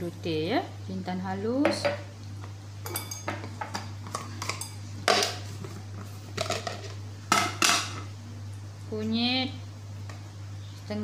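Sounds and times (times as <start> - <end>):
steady low hum: 0.0 - 11.0
metal spoon clinking on kitchenware: 2.8 - 3.8.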